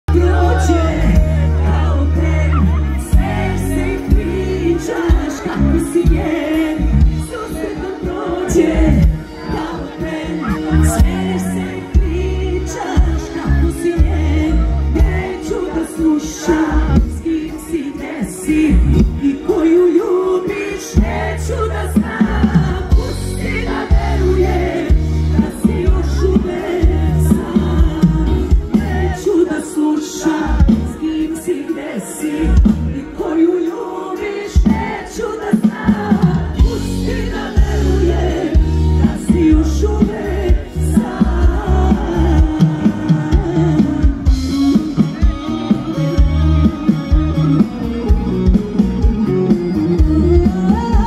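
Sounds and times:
heavy bass: 0.1s - 7.5s, 8.6s - 9.4s, 10.2s - 15.5s, 16.6s - 17.4s, 18.7s - 19.3s, 21.0s - 29.3s, 35.9s - 51.0s
woman singing into microphone: 0.1s - 45.4s, 50.0s - 51.0s
live band playing pop-folk: 0.1s - 51.0s.

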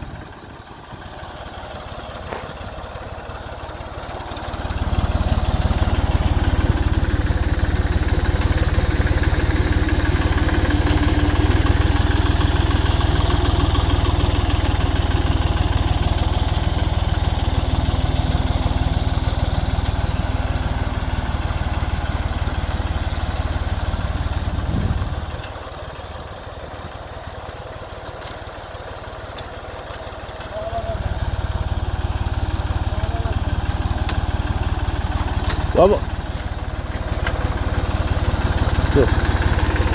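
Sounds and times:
tractor engine under load: 0.0s - 39.9s
trencher cutting stony dirt: 1.8s - 2.7s, 31.0s - 39.9s.

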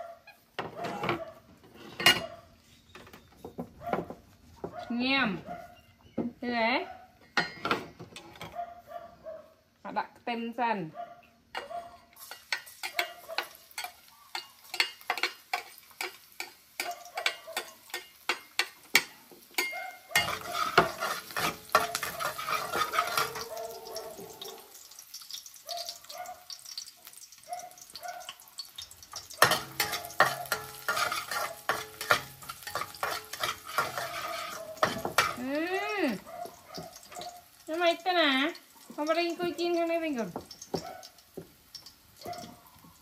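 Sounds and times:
metal spatula scraping wok: 0.9s - 2.9s, 11.6s - 23.6s, 29.1s - 36.0s
garlic sizzling in oil: 12.2s - 43.0s.

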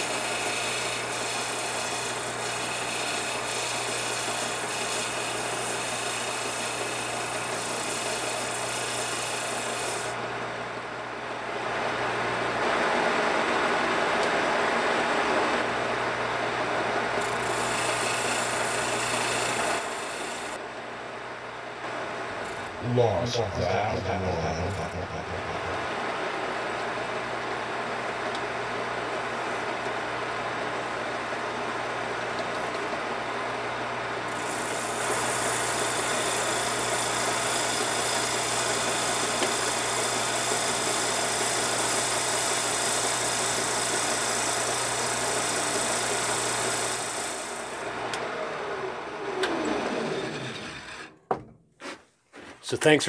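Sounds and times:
motor humming: 34.1s - 51.3s.

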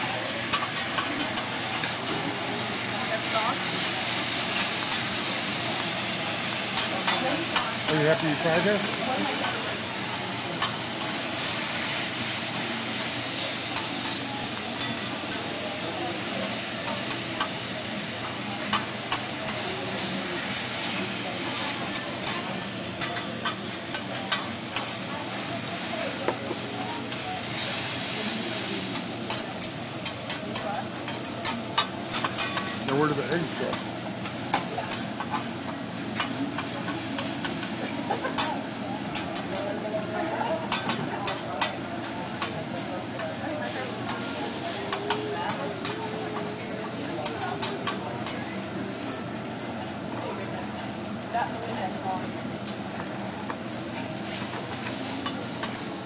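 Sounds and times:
noodles sizzling on a griddle: 0.0s - 56.0s.

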